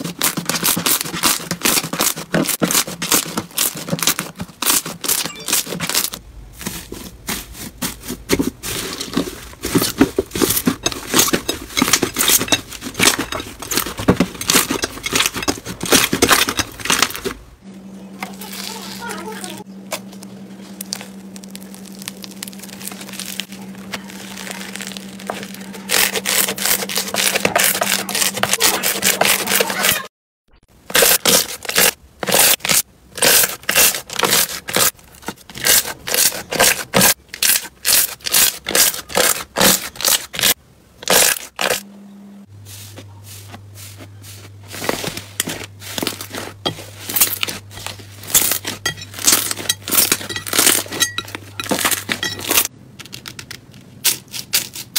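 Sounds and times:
slime crackling and squishing: 0.0s - 17.3s, 18.3s - 30.0s
steady low hum: 6.1s - 29.5s, 40.6s - 53.0s.

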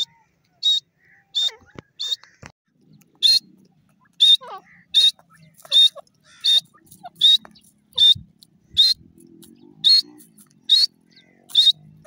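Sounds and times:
bird giving high-pitched calls: 3.1s - 9.2s, 9.8s - 12.0s.

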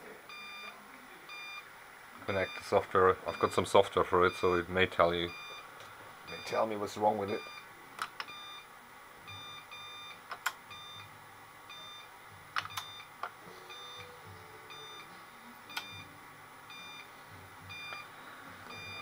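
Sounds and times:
alarm short high-pitched beeps: 13.7s - 15.1s, 18.7s - 19.0s.

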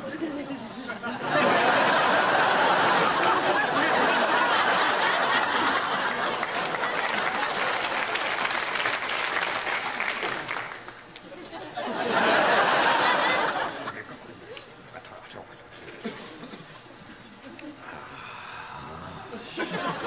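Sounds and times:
audience laughing and applauding: 1.1s - 14.2s, 19.4s - 20.0s.

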